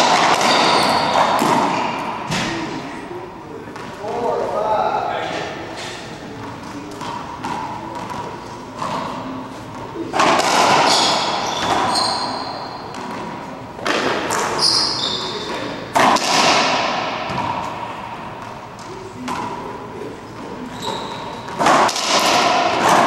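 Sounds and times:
racquetball thumps echoing: 0.0 - 4.4, 5.4 - 23.0
faint murmur of voices: 0.0 - 23.0
shoe squeaks on hardwood floor: 0.4 - 1.3, 10.8 - 13.0, 14.5 - 15.7, 20.6 - 21.5.

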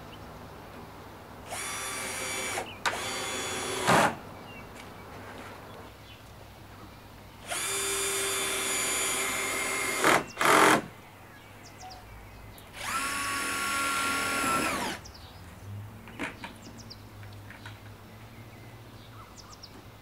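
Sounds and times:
power drill driving screws: 1.5 - 4.2, 7.4 - 10.9, 12.8 - 15.0.

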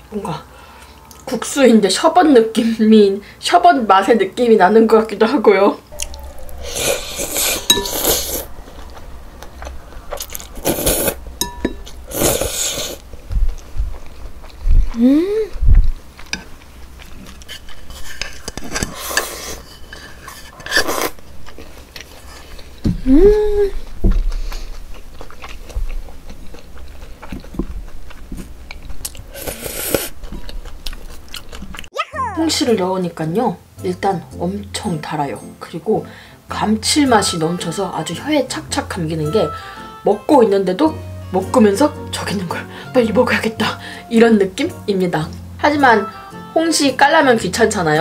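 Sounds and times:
chewing: 5.9 - 23.0, 23.7 - 31.9
person humming: 14.9 - 15.6, 32.0 - 32.7.

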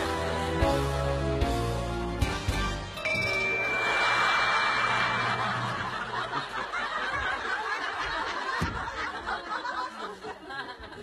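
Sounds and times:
steady high tone: 3.0 - 6.0
audience laughing: 3.6 - 11.0.

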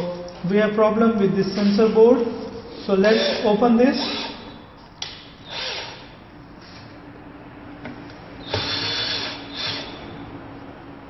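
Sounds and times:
cordless drill running: 2.7 - 4.6, 5.4 - 6.2, 8.4 - 10.1.

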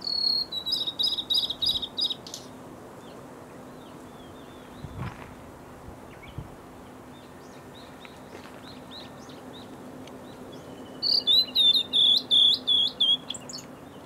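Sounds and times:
bird singing whistled notes: 0.0 - 2.5, 7.2 - 14.0
faint bird chirps: 0.0 - 3.1, 6.1 - 14.0.

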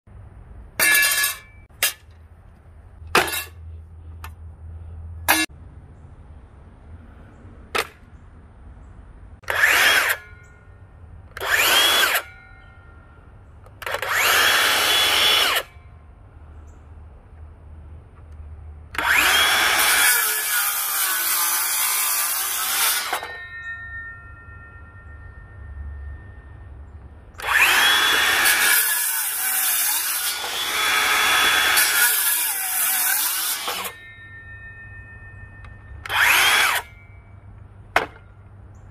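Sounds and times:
saw cutting wooden board: 9.4 - 10.4, 11.4 - 12.3, 13.8 - 15.8, 18.9 - 23.5, 27.4 - 34.1, 36.0 - 37.0
circular saw blade whining: 9.4 - 16.1, 18.9 - 37.6.

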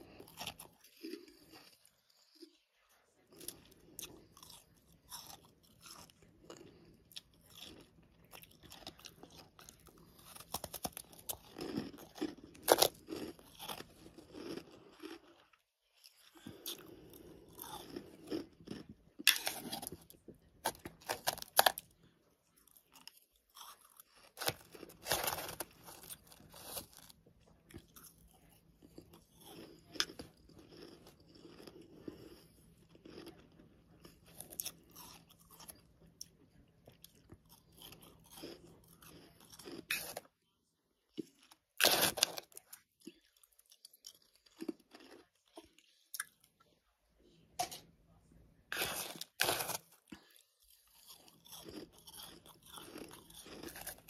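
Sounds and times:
chewing and crunching frost: 0.0 - 54.0.

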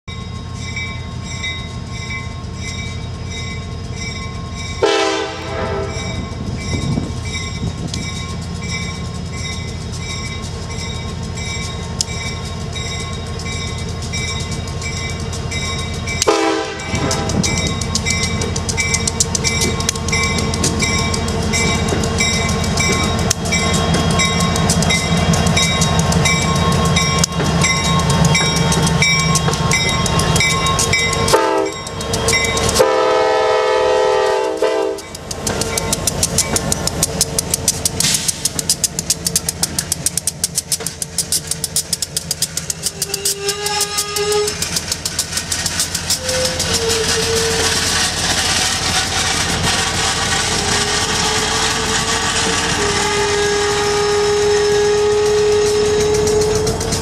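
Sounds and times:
diesel locomotives passing: 0.1 - 57.0
train horn blasts: 4.8 - 6.2, 16.2 - 17.6, 31.3 - 31.9, 32.8 - 35.1, 43.0 - 44.6, 46.2 - 47.8, 52.6 - 57.0.

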